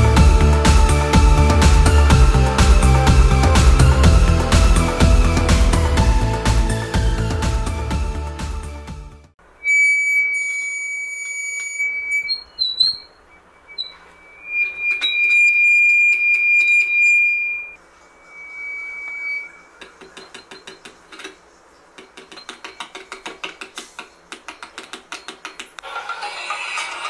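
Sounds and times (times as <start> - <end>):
high-pitched feedback squeal: 9.6 - 20.6
rapid clicks through speaker: 19.8 - 25.9.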